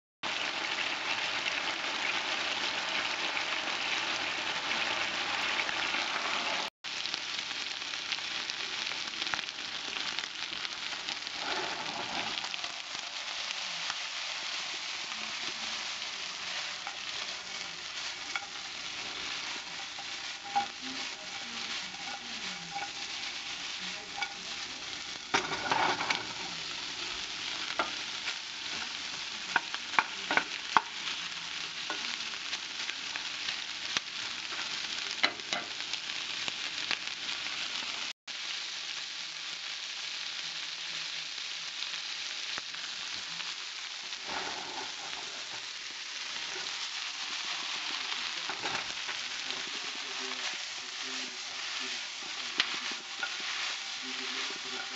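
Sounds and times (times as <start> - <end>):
meat and onion sizzling in oil: 0.2 - 54.9
spatula clattering in pan: 16.8 - 23.5, 24.1 - 26.5, 29.5 - 31.0, 34.5 - 35.7.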